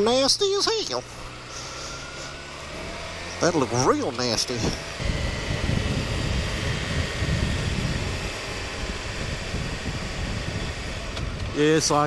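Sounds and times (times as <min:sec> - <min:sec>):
motorcycle engine running: 0:00.0 - 0:12.0
wind rumbling on microphone: 0:04.6 - 0:11.8.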